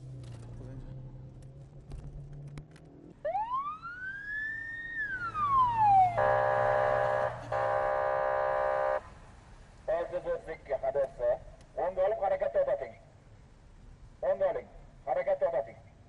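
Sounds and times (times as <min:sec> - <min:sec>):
police siren wail: 0:03.2 - 0:09.0
buzzing horn tone: 0:06.2 - 0:09.1.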